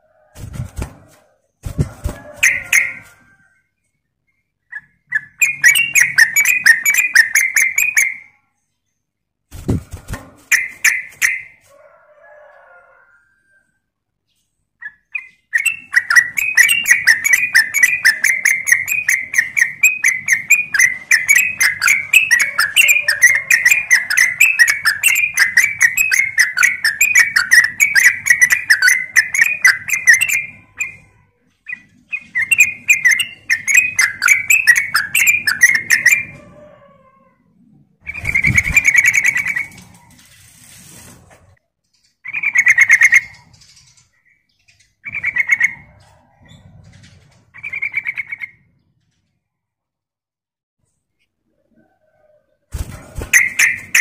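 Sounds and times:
bird chattering song: 4.2 - 8.8, 14.3 - 36.3, 42.0 - 46.6, 47.6 - 48.9, 53.2 - 54.0.

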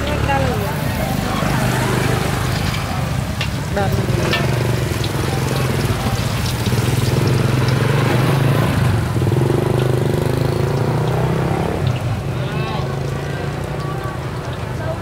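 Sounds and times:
dough frying in oil: 0.0 - 15.0.

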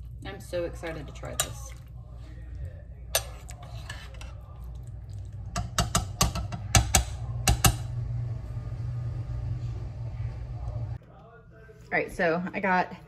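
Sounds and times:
spoon stirring soup: 0.0 - 8.1.

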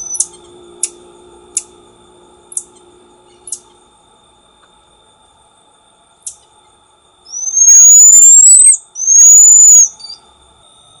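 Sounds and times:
marmoset whistled calls: 0.0 - 0.4, 7.3 - 10.2
marmoset chirp: 0.0 - 0.9, 7.2 - 10.3.

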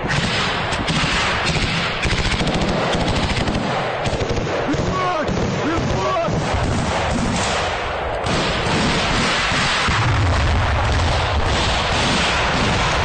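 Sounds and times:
gunfire: 0.0 - 13.0
heavy low rumble: 9.8 - 13.0.

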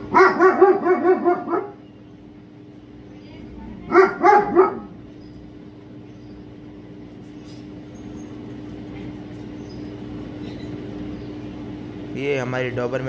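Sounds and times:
dog barking: 0.0 - 1.8, 3.8 - 5.0
low background hum: 0.0 - 13.0.

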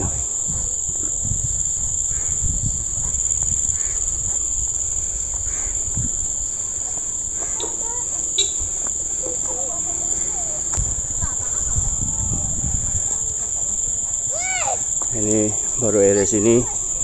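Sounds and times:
insects buzzing: 0.0 - 17.0
faint voices: 6.6 - 17.0.

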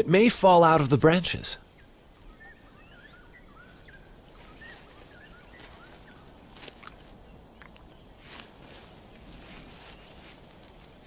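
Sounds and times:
small bird chirps: 1.6 - 8.4
rustles and crunches on dry grass: 4.2 - 11.0.

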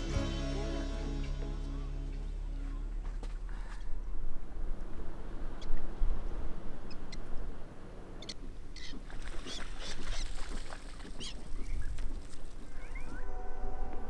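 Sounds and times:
low steady rumble: 0.0 - 8.6
bird chirps: 12.7 - 13.4.

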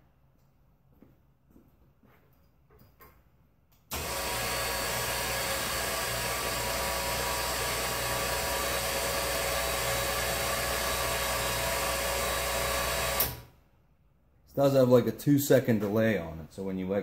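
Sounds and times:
electric winch motor running: 3.9 - 13.5.

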